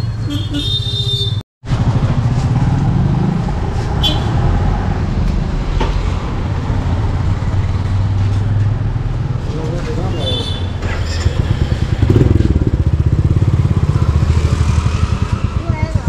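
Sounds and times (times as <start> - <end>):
passing traffic rumble: 1.6 - 16.0.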